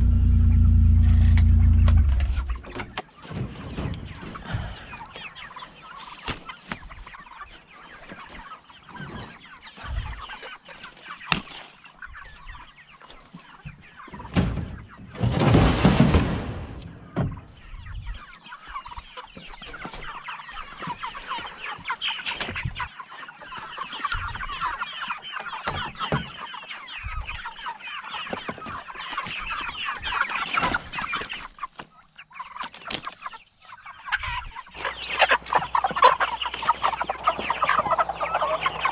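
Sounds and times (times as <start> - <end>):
chickens clucking: 0.0 - 38.9.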